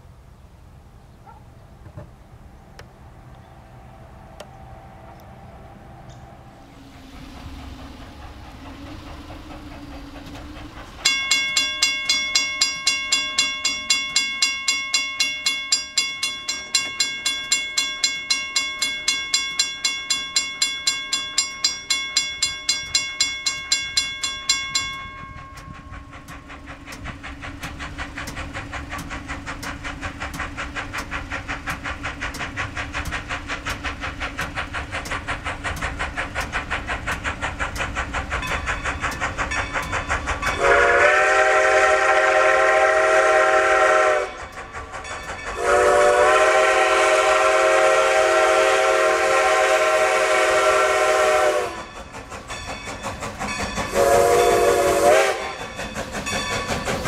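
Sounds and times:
steam locomotive chuffing: 0:01.3 - 0:57.0
bell ringing rapidly: 0:11.0 - 0:26.2.

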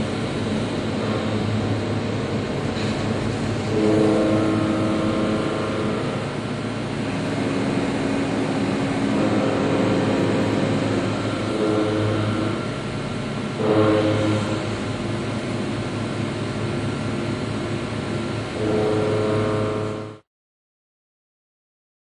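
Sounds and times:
milling machine cutting metal: 0:00.1 - 0:20.2.

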